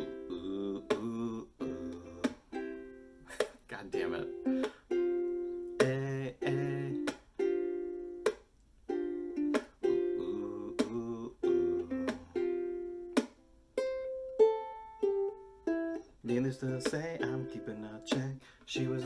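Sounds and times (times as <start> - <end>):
muted ukulele strokes: 0.0 - 19.0
ukulele picked notes: 0.0 - 19.0
ukulele strummed chords: 0.0 - 19.0.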